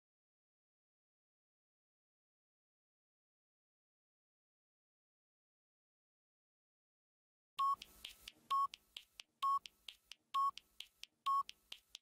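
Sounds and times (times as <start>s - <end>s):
faint ticks: 7.6s - 12.0s
timer beeping: 7.6s - 12.0s.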